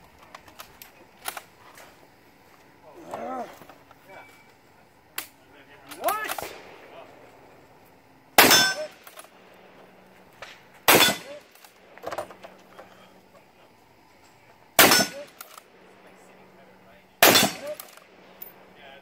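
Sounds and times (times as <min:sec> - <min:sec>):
rifle shots: 0:06.0 - 0:07.5, 0:08.4 - 0:12.0, 0:14.8 - 0:15.9, 0:17.2 - 0:18.6
steel targets ringing: 0:08.4 - 0:09.1, 0:10.9 - 0:11.5, 0:14.8 - 0:15.5, 0:17.2 - 0:18.6.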